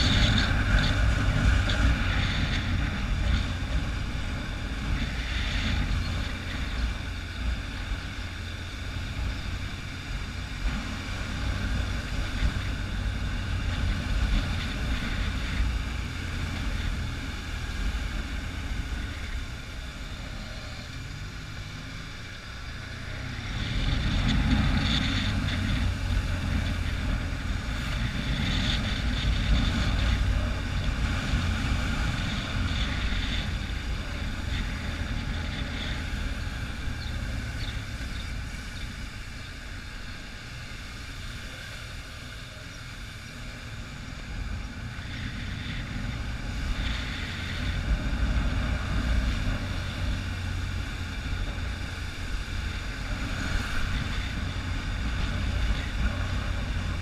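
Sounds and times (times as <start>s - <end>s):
wind noise on microphone: 0.0s - 19.5s, 22.9s - 39.2s
motorcycle engine running: 0.0s - 57.0s.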